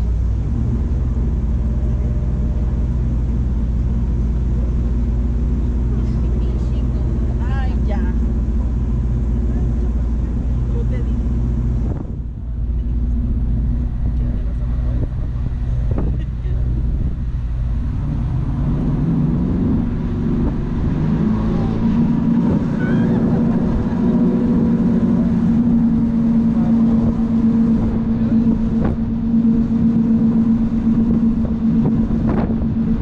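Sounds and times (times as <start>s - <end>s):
boat engines revving: 0.0s - 33.0s.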